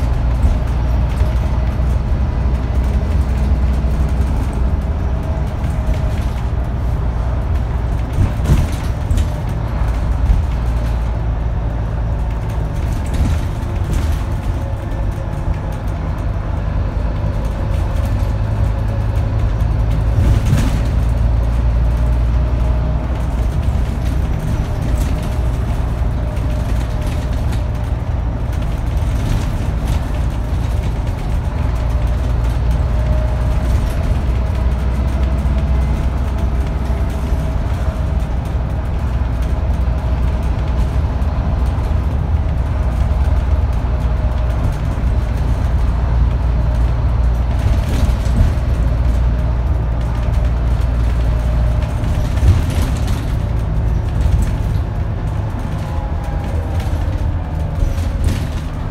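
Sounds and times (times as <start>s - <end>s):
bus engine drone: 0.0s - 58.9s
short knocks and rattles: 2.7s - 16.4s.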